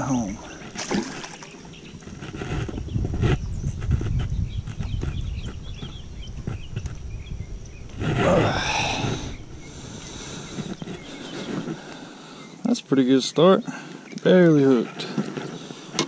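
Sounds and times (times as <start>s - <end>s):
fish splashing and thrashing: 0.5s - 2.4s.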